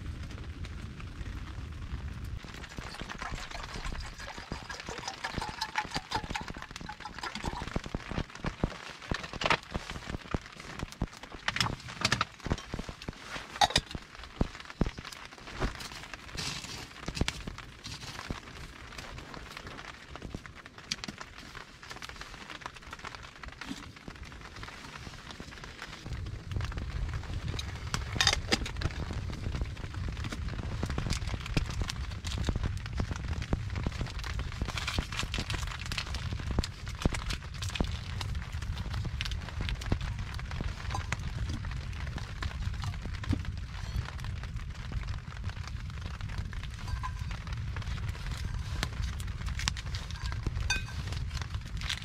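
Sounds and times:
low rumble: 0:00.0 - 0:10.3, 0:25.8 - 0:52.0
campfire crackling and popping: 0:00.0 - 0:52.0.

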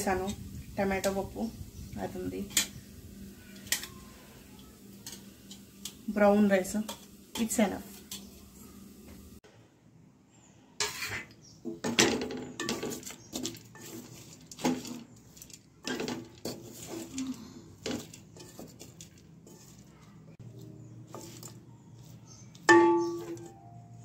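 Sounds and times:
dishes and cutlery clinking: 0:06.8 - 0:08.4, 0:10.8 - 0:23.9.

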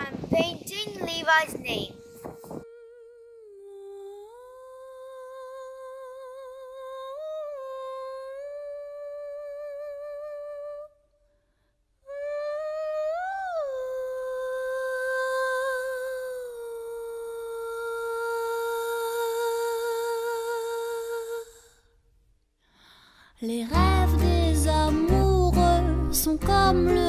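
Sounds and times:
person humming with vibrato: 0:01.9 - 0:11.0.

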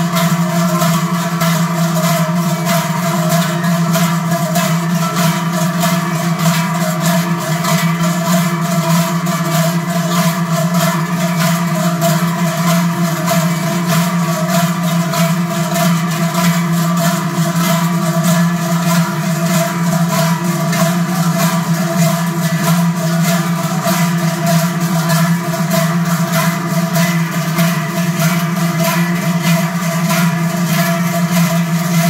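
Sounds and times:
large cowbells clanging: 0:00.0 - 0:32.0.

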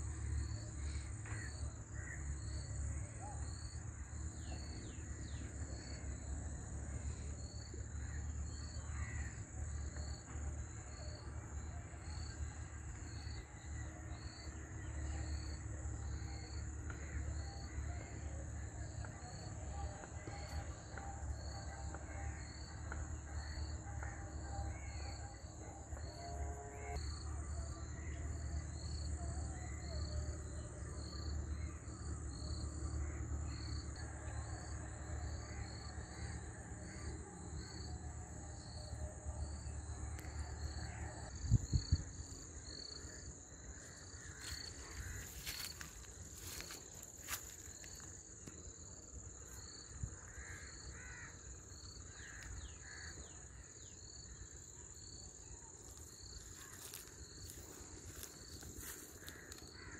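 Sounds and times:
insect buzz: 0:41.7 - 0:48.2, 0:55.9 - 0:59.9.

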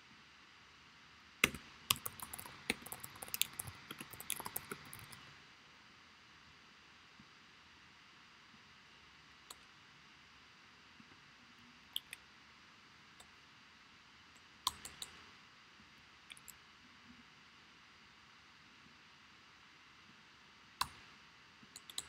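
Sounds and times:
faint steady hiss: 0:00.0 - 0:22.0
sharp clicks: 0:01.4 - 0:05.2, 0:21.8 - 0:22.0.

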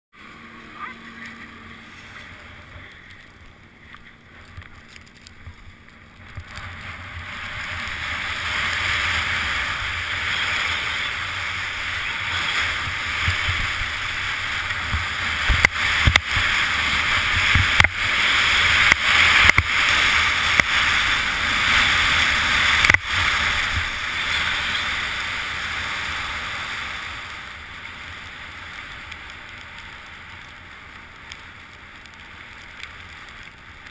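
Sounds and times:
skis scraping on snow: 0:00.2 - 0:33.9
wind on microphone: 0:01.3 - 0:27.3.

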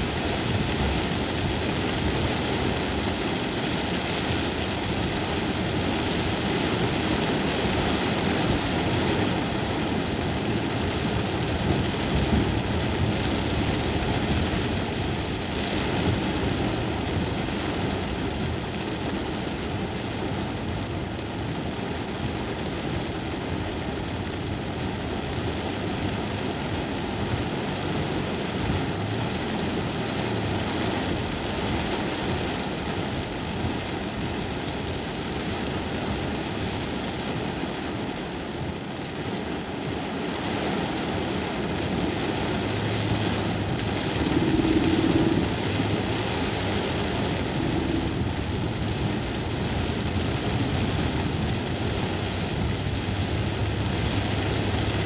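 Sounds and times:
heavy rain on car roof: 0:00.0 - 0:55.0
car engine running: 0:41.9 - 0:55.0.

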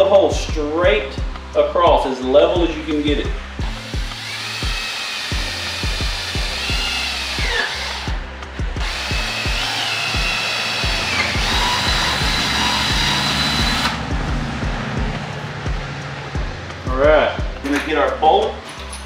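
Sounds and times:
background music with steady beat: 0:00.0 - 0:19.0
cordless drill boring plastic pipe: 0:03.6 - 0:08.2, 0:08.8 - 0:14.0.

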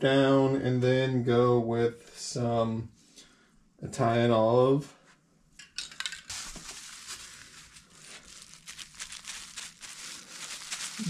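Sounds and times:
plastic bag crinkling: 0:06.0 - 0:11.0.

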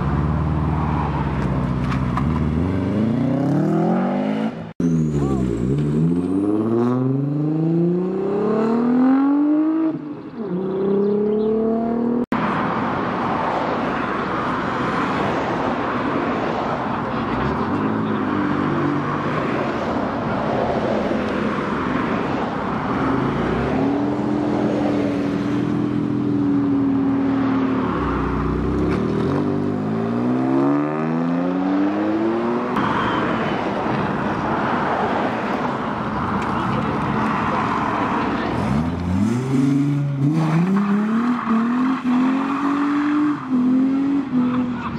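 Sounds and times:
car engines revving and accelerating: 0:00.0 - 0:44.9.

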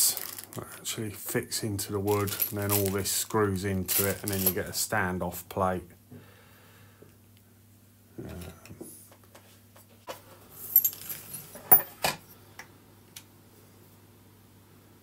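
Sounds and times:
metal fixings clinking on table: 0:10.6 - 0:12.4.

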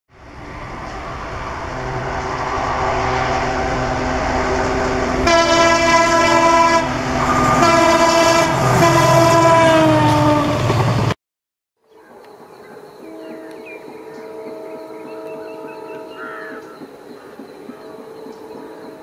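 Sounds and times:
diesel locomotive engine and wheels: 0:00.1 - 0:11.2, 0:12.0 - 0:19.0
multi-tone train horn: 0:01.7 - 0:10.8, 0:13.0 - 0:16.6.

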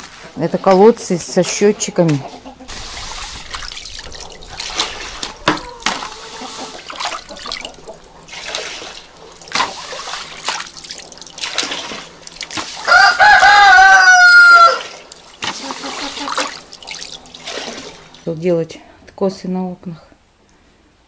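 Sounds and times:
broom swishing water on concrete: 0:01.4 - 0:18.5
rooster crowing: 0:05.0 - 0:06.8, 0:12.8 - 0:15.0.

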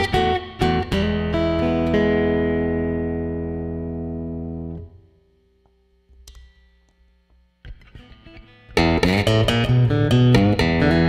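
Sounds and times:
electric guitar chord ringing: 0:00.0 - 0:05.4, 0:07.6 - 0:11.0
loud strummed guitar: 0:07.8 - 0:11.0.

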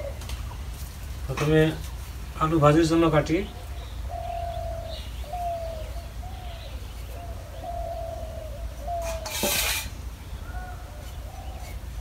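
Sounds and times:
dove cooing: 0:00.0 - 0:00.3, 0:03.5 - 0:12.0
sharp scraping rustle: 0:08.9 - 0:12.0.

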